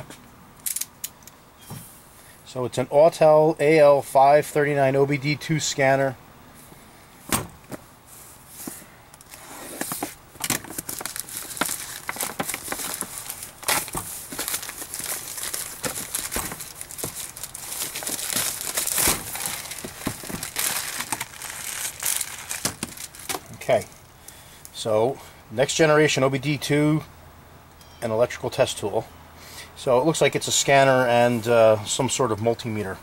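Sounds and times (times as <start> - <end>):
plastic mailer bag crinkling: 9.2 - 23.6.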